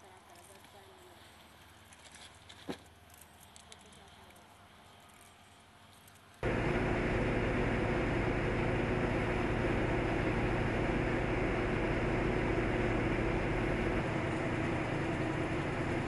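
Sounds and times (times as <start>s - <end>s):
mill machinery drone: 6.4s - 16.0s.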